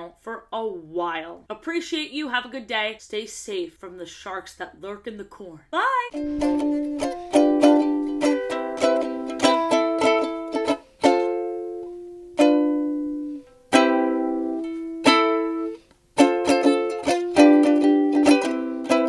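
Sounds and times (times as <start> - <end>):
strummed string chords: 6.1 - 19.0.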